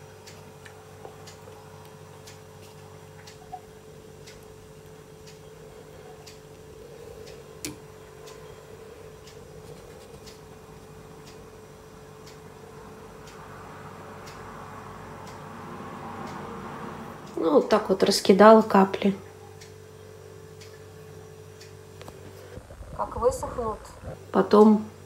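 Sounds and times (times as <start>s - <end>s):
faint regular ticking: 0.0s - 16.5s, 18.9s - 25.0s
steady low hum: 0.0s - 25.0s.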